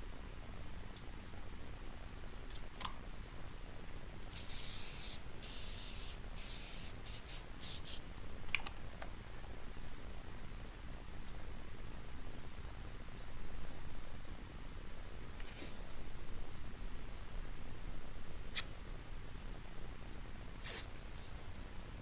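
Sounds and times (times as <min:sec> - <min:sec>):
aerosol can spraying: 0:04.3 - 0:08.0, 0:20.6 - 0:20.9
short spray puffs: 0:04.3 - 0:08.0, 0:20.6 - 0:21.0.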